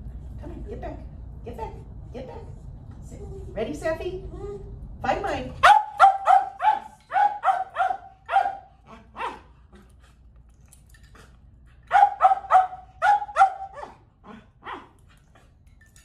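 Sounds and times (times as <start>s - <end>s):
dog barking: 5.6s - 9.5s, 11.9s - 14.0s, 14.6s - 14.9s.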